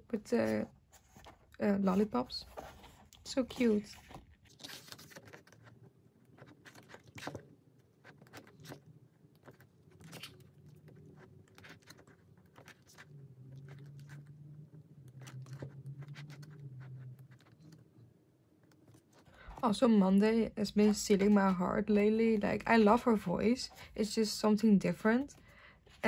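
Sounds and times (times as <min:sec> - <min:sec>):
faint low hum: 0:00.0 - 0:26.0
pages turning and paper rustling: 0:00.5 - 0:14.4, 0:15.0 - 0:17.8.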